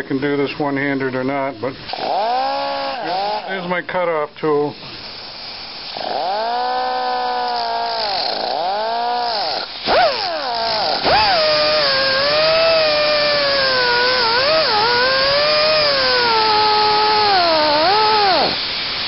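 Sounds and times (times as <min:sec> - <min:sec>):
abrasive wheel whining: 0:05.9 - 0:18.7
wheel grinding through bolt: 0:05.9 - 0:18.7.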